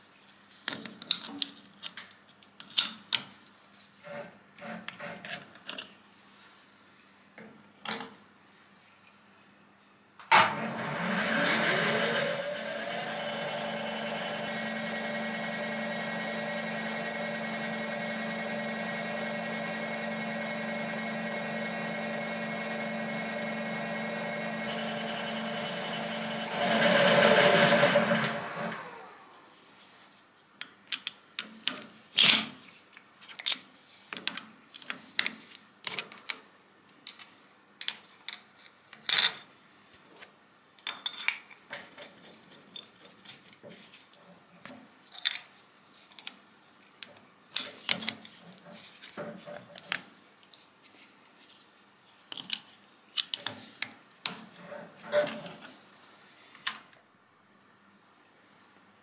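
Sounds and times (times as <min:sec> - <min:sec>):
milling machine drilling metal: 0:10.3 - 0:28.8
spindle winding down: 0:10.3 - 0:29.4.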